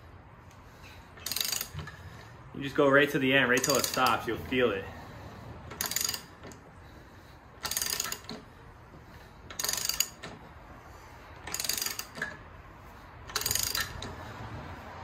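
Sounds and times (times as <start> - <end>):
ratchet wrench clicking: 1.2 - 2.4, 3.4 - 4.3, 5.7 - 6.7, 7.6 - 8.6, 9.4 - 10.5, 11.3 - 12.5, 13.2 - 14.4.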